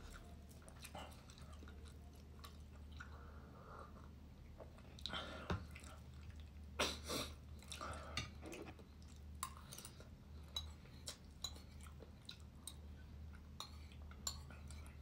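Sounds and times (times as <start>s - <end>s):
person chewing: 0.0s - 3.2s, 7.6s - 15.0s
low steady hum: 0.0s - 15.0s.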